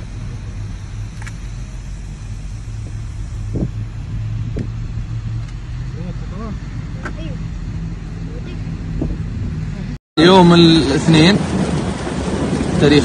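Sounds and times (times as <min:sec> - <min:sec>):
car engine humming: 0:00.0 - 0:13.0.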